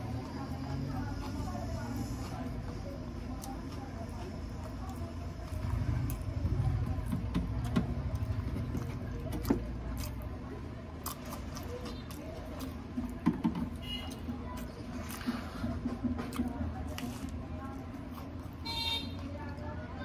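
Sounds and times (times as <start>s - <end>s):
person chewing: 3.2s - 19.4s.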